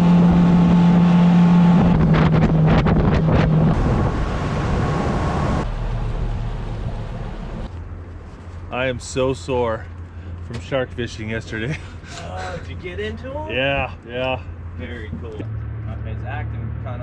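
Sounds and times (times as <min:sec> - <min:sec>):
wind on microphone: 0:00.0 - 0:07.7
motorboat engine running: 0:00.0 - 0:07.8
water noise: 0:00.0 - 0:08.0.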